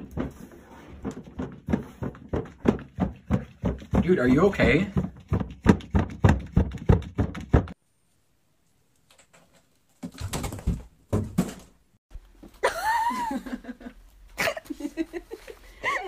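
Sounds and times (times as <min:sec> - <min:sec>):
fast run of sharp knocks: 0:01.0 - 0:07.8.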